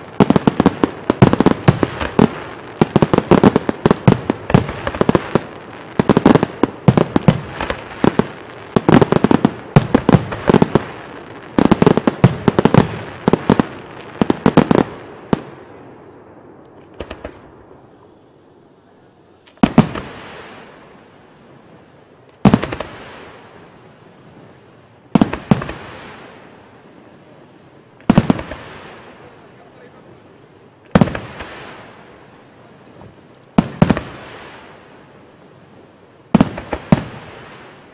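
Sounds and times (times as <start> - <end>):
loud firework booms: 0.0 - 18.1, 19.5 - 21.1, 22.4 - 23.5, 25.1 - 26.6, 28.0 - 30.2, 30.9 - 32.1, 32.9 - 34.8, 36.3 - 37.9.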